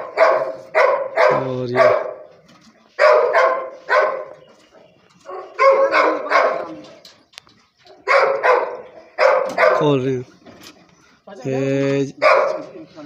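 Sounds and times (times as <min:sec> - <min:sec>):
dog barking: 0:00.0 - 0:02.3, 0:03.0 - 0:07.0, 0:07.9 - 0:10.0, 0:12.2 - 0:12.8.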